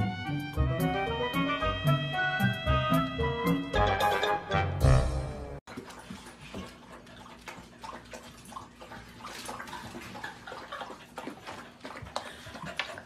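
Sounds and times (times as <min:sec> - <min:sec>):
music: 0:00.0 - 0:05.6
puppy lapping water: 0:05.7 - 0:13.0.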